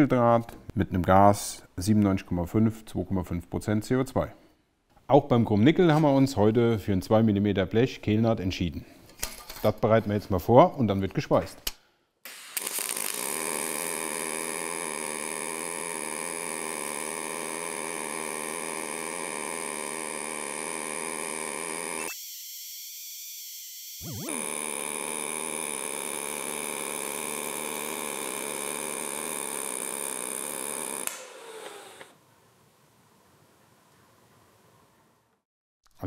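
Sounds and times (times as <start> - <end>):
welding arc buzzing hiss: 12.2 - 22.2, 23.3 - 32.2.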